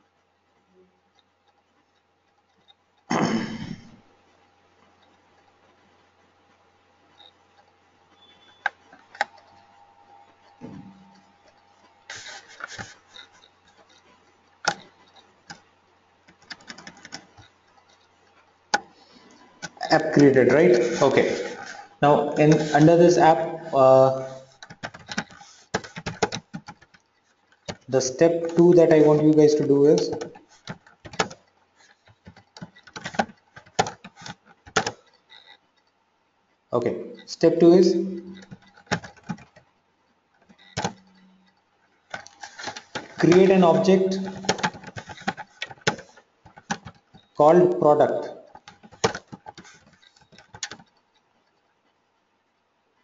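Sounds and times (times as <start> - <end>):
sharp clicks and knocks: 10.4 - 23.6, 24.5 - 29.2, 30.0 - 36.0, 38.2 - 47.4, 48.4 - 52.0.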